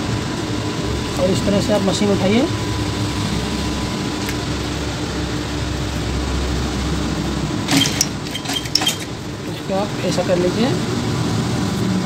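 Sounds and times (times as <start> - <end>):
sewing machine motor humming: 7.7 - 9.2.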